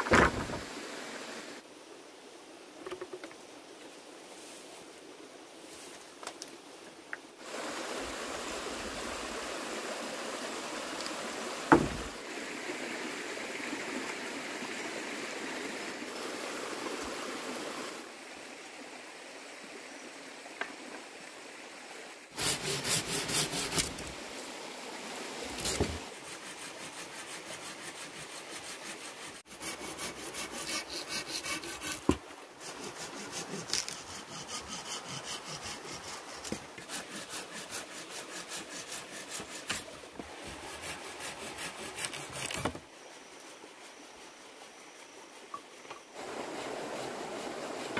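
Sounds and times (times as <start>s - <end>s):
hand saw cutting wood: 22.4s - 24.2s, 25.5s - 42.8s.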